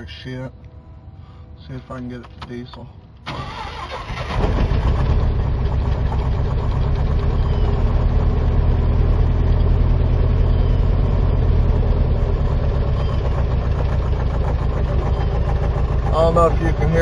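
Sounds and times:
rough idling engine with knock: 4.3s - 10.3s, 11.0s - 17.0s.

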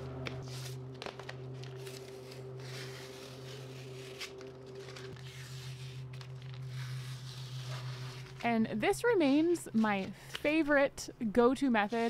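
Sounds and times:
steady low hum: 0.0s - 12.0s
tape peeling and ripping: 0.4s - 8.5s.

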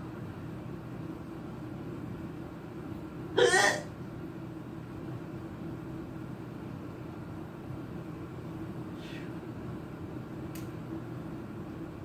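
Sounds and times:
low background hum: 0.0s - 12.0s
woman hiccuping: 3.4s - 3.9s.

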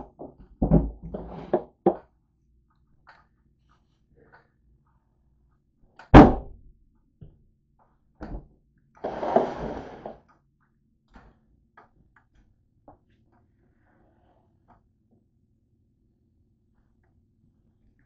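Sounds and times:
rustling or scraping: 1.0s - 1.6s, 9.0s - 10.2s.

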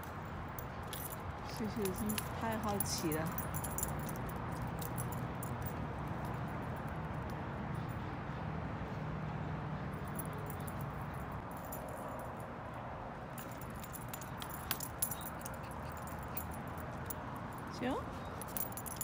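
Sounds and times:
small metal pieces jingling: 0.6s - 6.3s, 13.4s - 17.2s, 18.3s - 19.0s.

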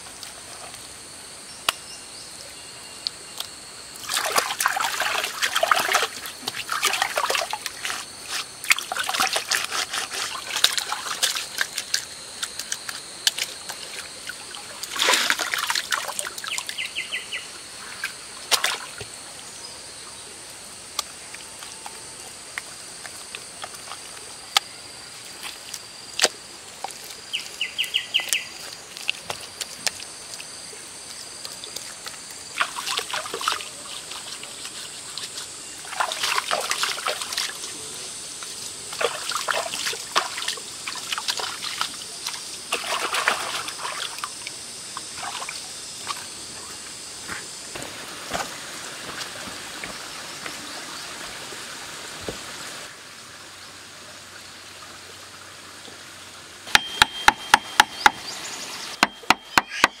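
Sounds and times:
trickling stream: 0.0s - 60.0s.

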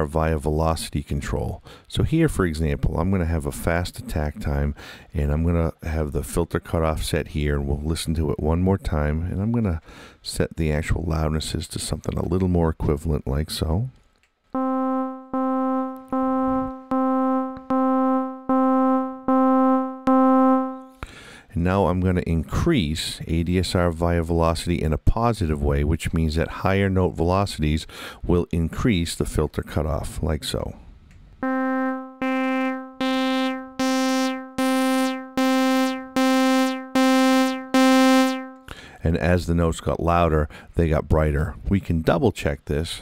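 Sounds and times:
synthesizer notes: 14.6s - 21.0s, 31.4s - 38.6s.

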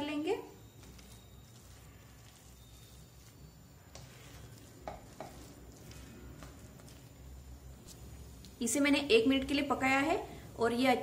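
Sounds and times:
spatula stirring in a wok: 0.6s - 8.8s
spatula scraping a pan: 0.9s - 7.2s.

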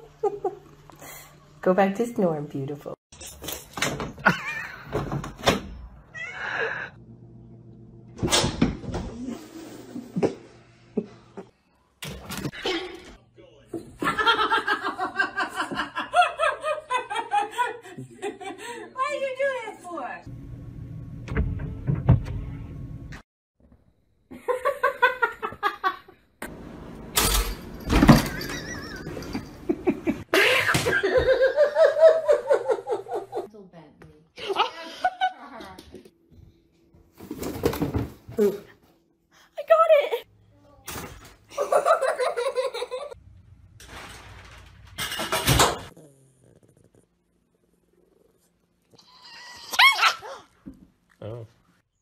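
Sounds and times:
people laughing: 13.8s - 18.9s, 28.4s - 33.5s.

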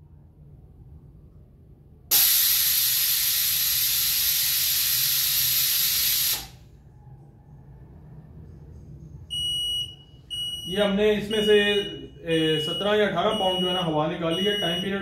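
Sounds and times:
air hissing out of tyre: 2.1s - 6.7s
electronic beep: 9.3s - 15.0s.

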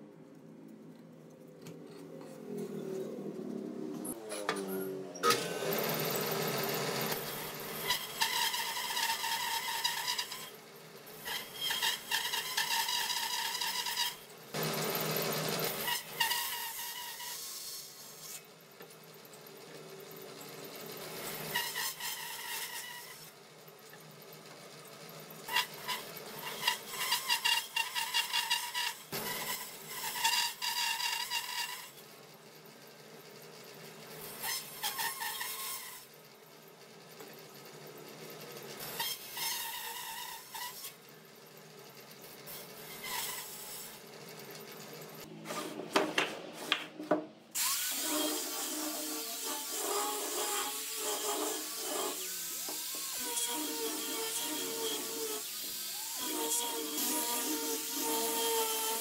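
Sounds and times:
power tool whine on wood: 47.6s - 59.0s.

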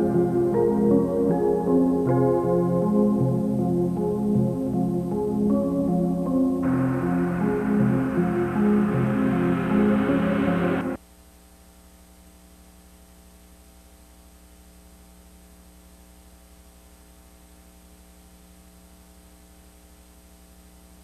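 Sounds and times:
ambient music: 0.0s - 11.0s
electrical mains hum: 0.0s - 11.0s
faint hiss: 0.0s - 11.0s.

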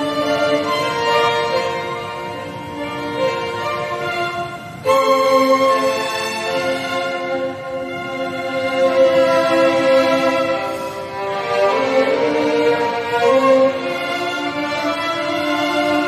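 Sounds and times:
violins playing held chords: 0.0s - 16.0s.

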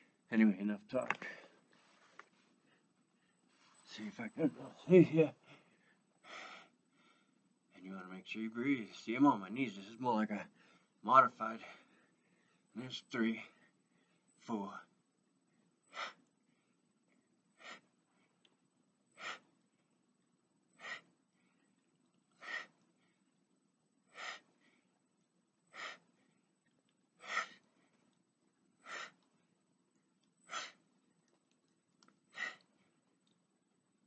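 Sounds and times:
man breathing out sharply: 32.3s - 32.7s.

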